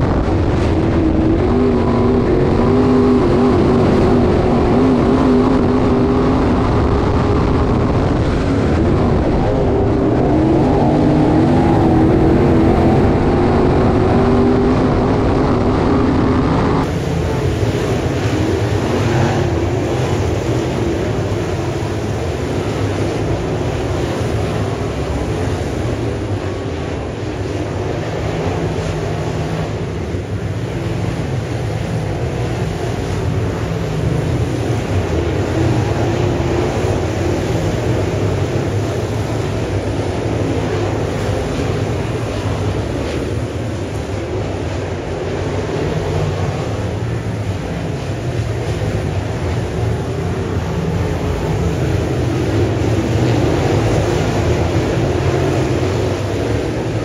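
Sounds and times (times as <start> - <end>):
race car engines roaring: 0.0 - 57.0.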